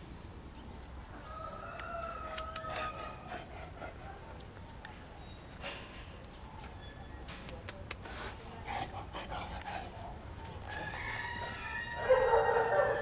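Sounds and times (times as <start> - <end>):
sharp clicks: 7.3 - 8.1.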